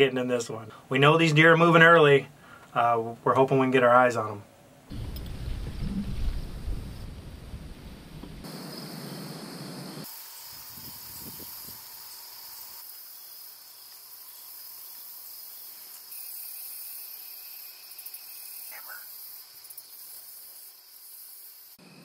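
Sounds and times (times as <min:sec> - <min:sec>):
insects droning: 0:04.9 - 0:22.0.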